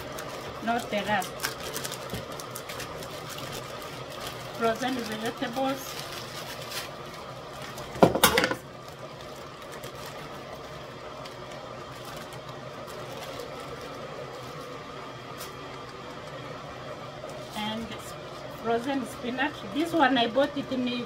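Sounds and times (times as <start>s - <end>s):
frozen vegetables rattling into pot: 0.0s - 14.8s
electric kettle humming: 0.0s - 21.0s.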